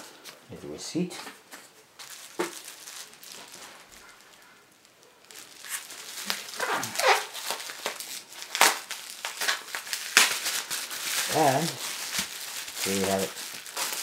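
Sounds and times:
bubble wrap crinkling: 1.2 - 14.0.

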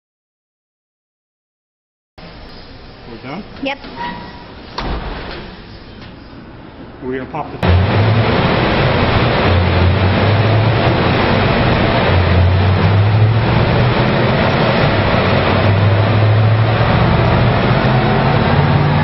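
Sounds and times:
car engine on dyno: 2.2 - 19.0.

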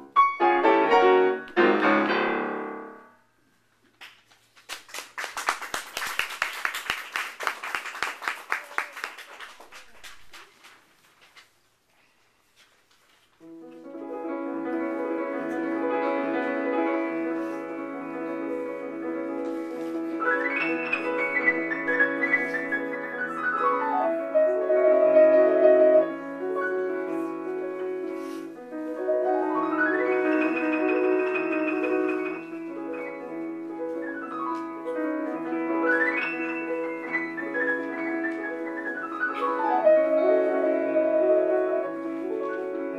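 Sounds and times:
solo upright piano: 0.0 - 3.2, 13.4 - 42.9.

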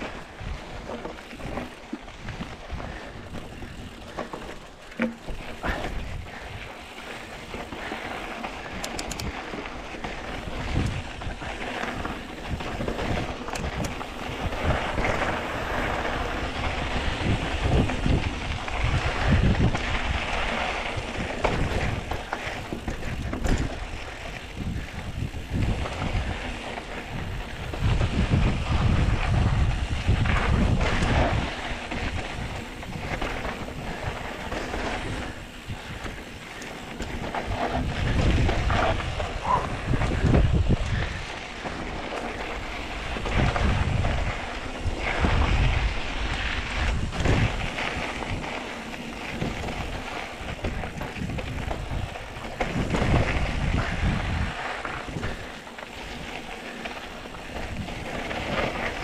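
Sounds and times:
mountain bike rattle and tyre noise: 0.0 - 59.0
wind buffeting microphone: 0.0 - 59.0.

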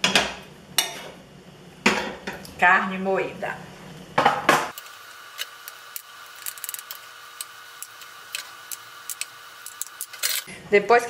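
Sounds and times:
faint hum and hiss: 0.0 - 11.0.

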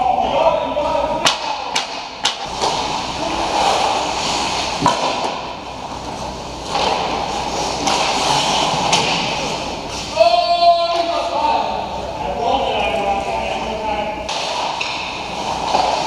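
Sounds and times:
hockey sticks and puck clacking: 1.2 - 11.8, 14.2 - 16.0
skates scraping on ice: 1.3 - 10.2, 14.3 - 16.0.

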